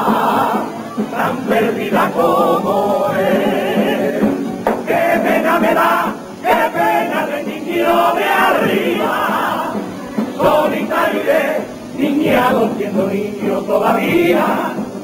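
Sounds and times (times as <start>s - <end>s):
group singing in unison: 0.0s - 15.0s.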